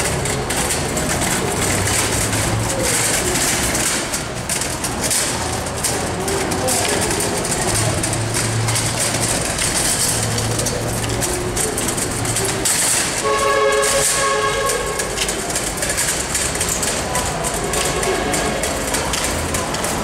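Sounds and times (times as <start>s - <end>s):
trolley casters rumbling on concrete: 0.0s - 20.0s
horn sounding: 13.2s - 15.2s.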